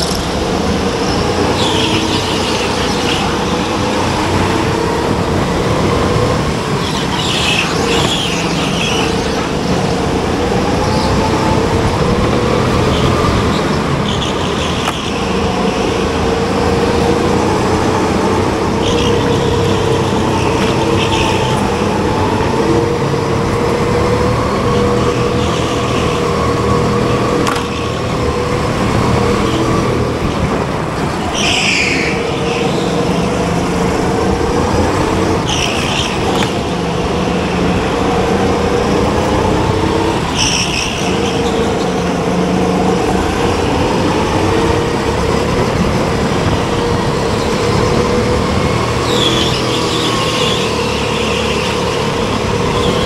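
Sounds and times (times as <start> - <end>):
tyre squeal: 0.0 - 4.2, 6.7 - 9.8, 31.0 - 33.4, 40.0 - 44.7, 46.4 - 53.0
go-kart engine: 0.0 - 53.0.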